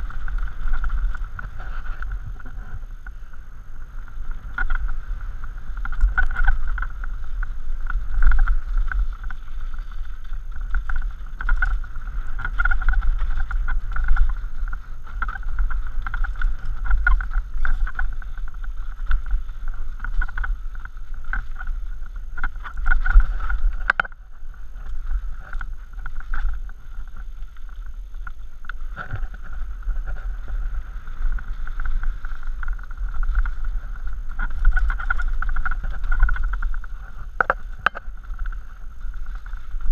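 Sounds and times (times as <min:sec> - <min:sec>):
bike rattling on dirt and stones: 0:00.0 - 0:39.9
wind rumbling on microphone: 0:00.0 - 0:39.9.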